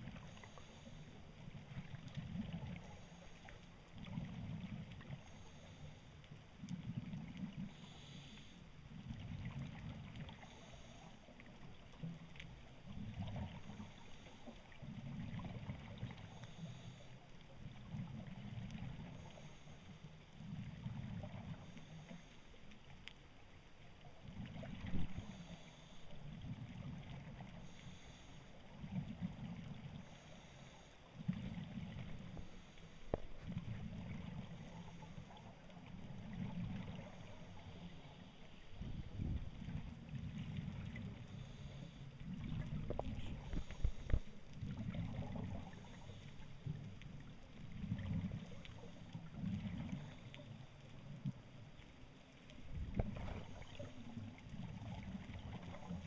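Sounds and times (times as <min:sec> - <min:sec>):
exhaled bubbles rumbling: 0:04.0 - 0:05.2, 0:09.0 - 0:10.4, 0:24.2 - 0:25.3, 0:31.2 - 0:32.5, 0:33.1 - 0:37.9, 0:38.7 - 0:41.4, 0:42.2 - 0:46.1, 0:46.7 - 0:50.4, 0:52.5 - 0:56.0.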